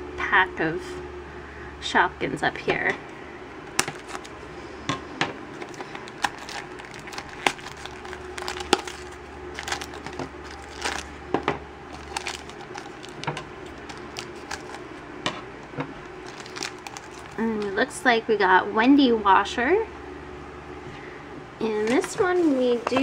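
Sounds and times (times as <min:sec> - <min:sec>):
plastic packaging crackling: 0:03.7 - 0:04.4, 0:05.4 - 0:17.9
scissors snipping foil: 0:03.8 - 0:04.3, 0:05.6 - 0:11.1.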